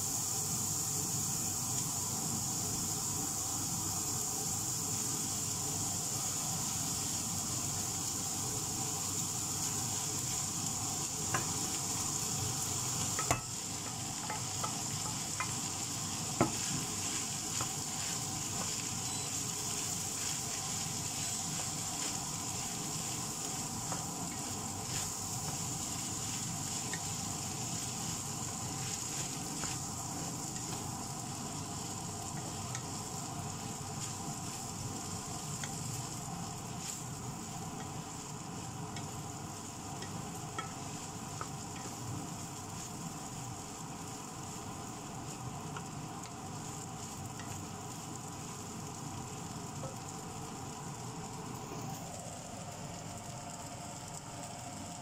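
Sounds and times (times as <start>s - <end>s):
rice sizzling in a wok: 0.0s - 55.0s
spatula tapping pan: 11.2s - 12.0s, 13.0s - 28.1s, 32.2s - 33.0s, 39.9s - 42.0s
wooden spatula scraping: 13.2s - 29.8s.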